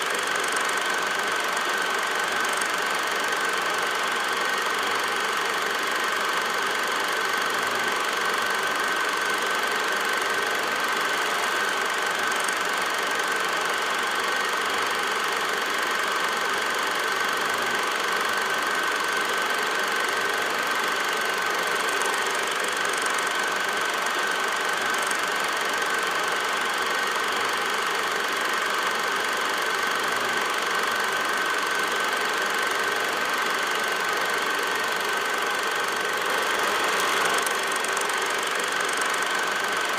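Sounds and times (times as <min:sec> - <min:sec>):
machine running: 0:26.8 - 0:39.9.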